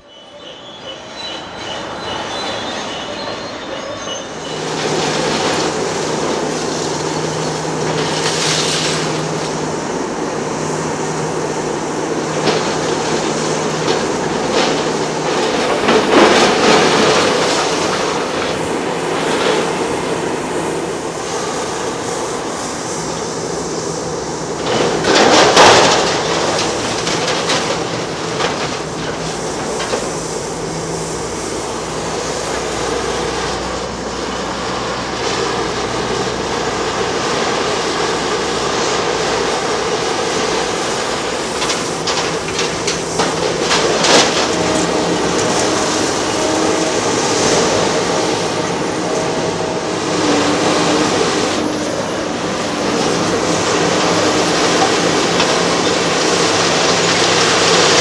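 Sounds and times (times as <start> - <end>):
diesel engine humming: 0.0 - 58.0.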